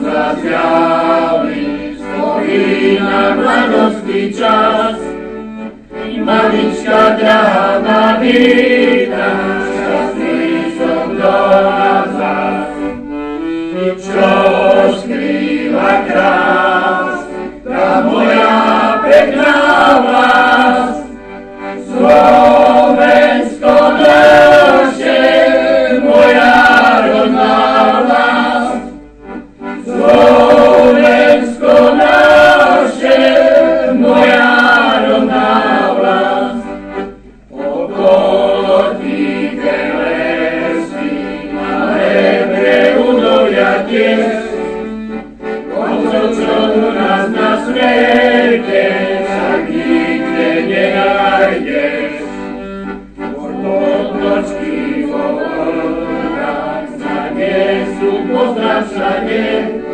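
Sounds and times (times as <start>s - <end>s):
choir singing: 0.0s - 59.9s.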